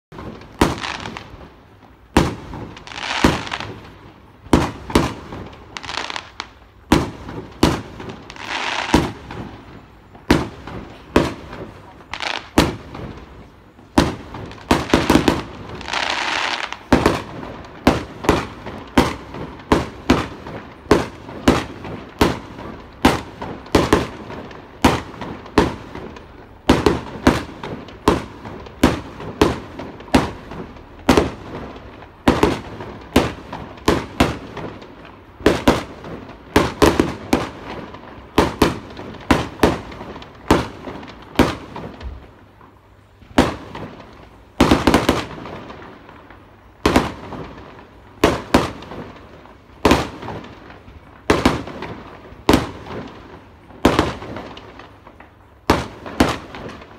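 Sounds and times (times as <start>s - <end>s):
firework hiss: 0.2s - 1.5s, 2.2s - 34.7s.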